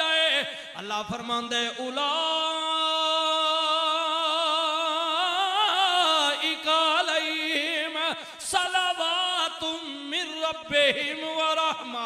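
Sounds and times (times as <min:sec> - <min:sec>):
man chanting: 0:00.0 - 0:12.0.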